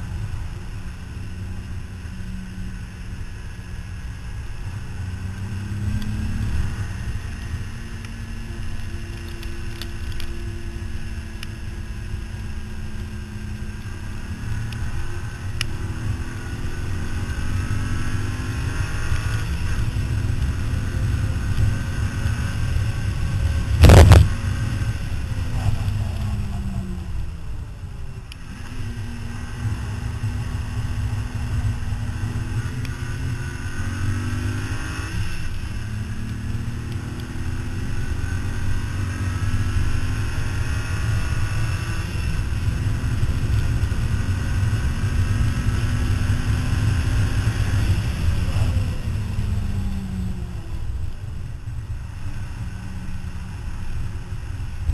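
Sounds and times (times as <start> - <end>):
wind and road noise: 0.0 - 54.9
car engine revving through gears: 4.9 - 11.1, 13.0 - 27.3, 28.3 - 51.2.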